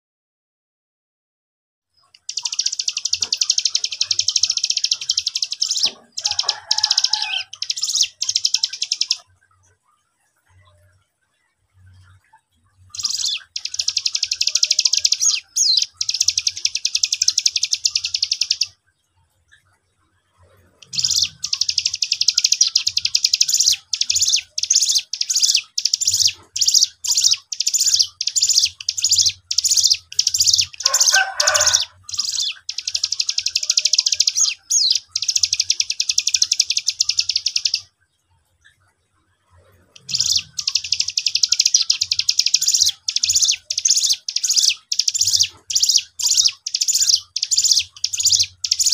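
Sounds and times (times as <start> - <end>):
low rough bird sound: 2.0 - 48.9
bird rattling trill: 2.2 - 9.2, 13.0 - 18.7, 20.8 - 37.9, 40.0 - 48.9.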